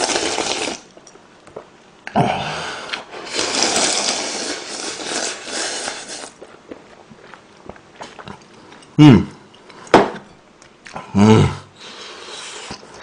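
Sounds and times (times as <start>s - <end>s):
slurping noodles and broth: 0.0s - 0.9s, 2.3s - 6.5s, 11.8s - 13.0s.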